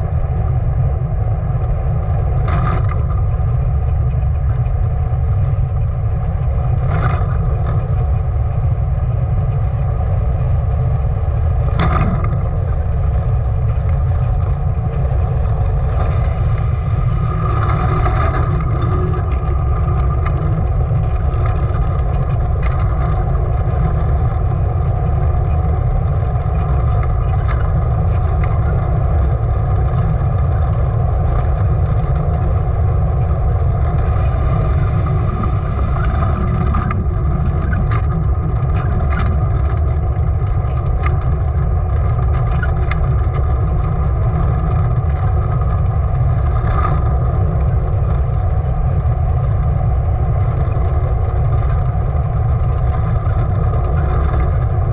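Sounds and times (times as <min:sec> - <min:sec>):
wheels rolling on asphalt: 0:00.0 - 0:54.9
wind rumble on microphone: 0:00.0 - 0:54.9
bodywork clicks and rattles: 0:11.6 - 0:12.9, 0:13.5 - 0:54.9.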